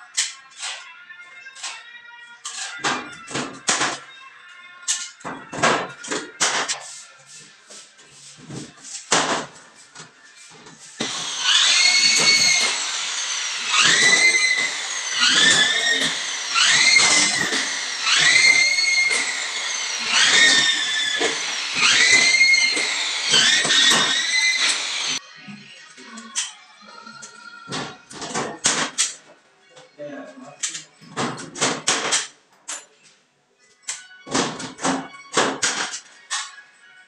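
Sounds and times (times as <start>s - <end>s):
electric drill whining: 11.0s - 25.2s.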